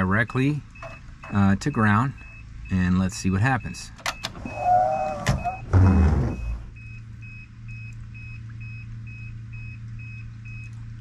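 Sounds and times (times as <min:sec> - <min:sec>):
warning buzzer beeping: 0:04.2 - 0:06.7.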